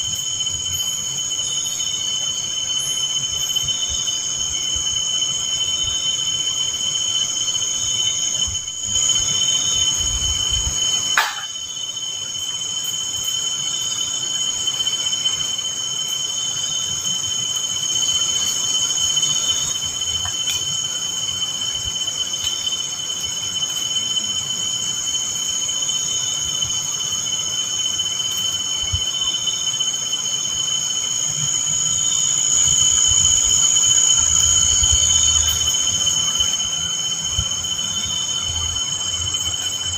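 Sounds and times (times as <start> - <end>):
crickets chirring: 0.0 - 39.9
short knock: 11.2 - 11.5.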